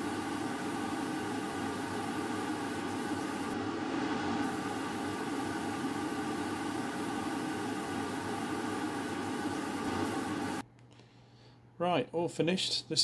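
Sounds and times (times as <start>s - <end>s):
air spray gun hissing: 0.0s - 3.6s, 4.4s - 10.6s
motor hum: 0.0s - 10.6s.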